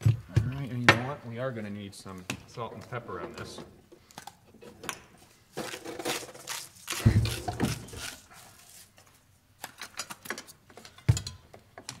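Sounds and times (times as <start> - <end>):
rustling: 5.2 - 9.3.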